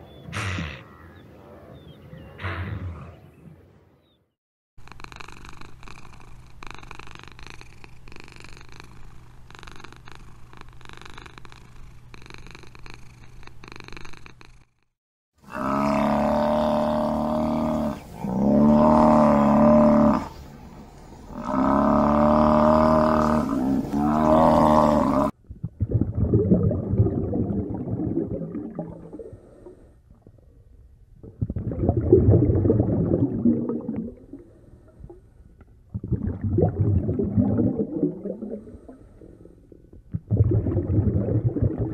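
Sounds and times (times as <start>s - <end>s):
cat purring: 4.8s - 14.8s.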